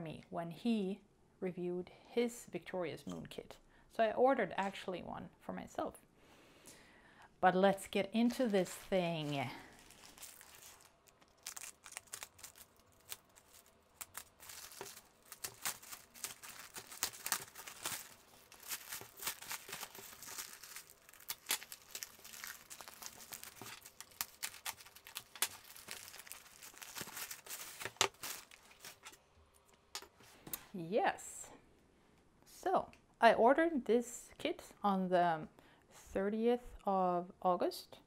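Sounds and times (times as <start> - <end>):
plastic bag crinkling and tearing: 8.2 - 29.2.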